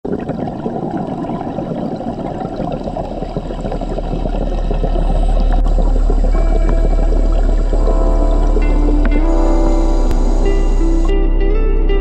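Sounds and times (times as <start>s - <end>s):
underwater gurgling and crackling: 0.0s - 11.1s
deep low drone: 3.4s - 12.0s.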